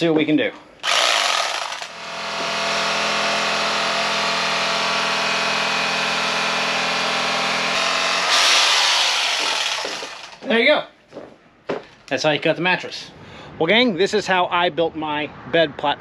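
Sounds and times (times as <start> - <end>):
electric knife cutting foam: 0.8 - 10.5.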